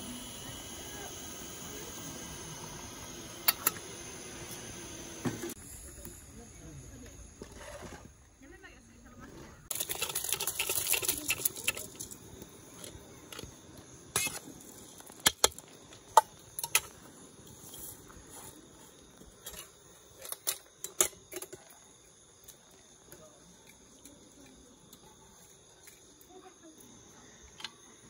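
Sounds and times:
crickets chirping: 0.0s - 28.0s
metal pots clanking: 9.7s - 12.1s.

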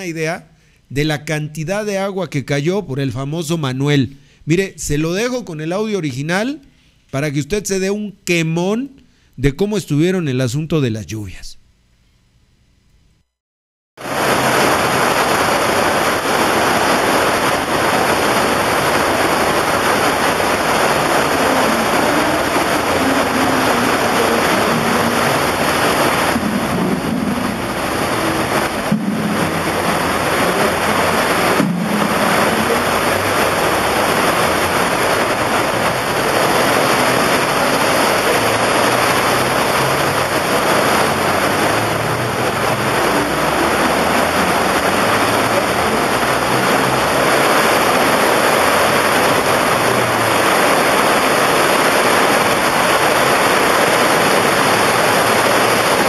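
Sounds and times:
water gushing from roof: 14.0s - 56.0s.

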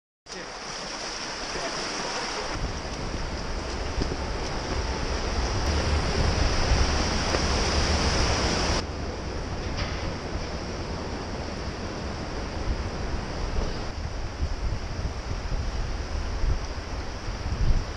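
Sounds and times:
rushing creek water: 0.3s - 17.9s
low microphone rumble: 2.6s - 16.7s.

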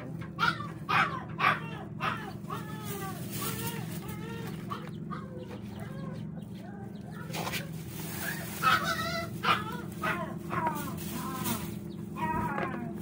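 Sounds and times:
chickens clucking: 0.0s - 13.0s
steady low hum: 0.0s - 13.0s
plastic bag crackling: 2.6s - 4.7s, 7.3s - 13.0s.

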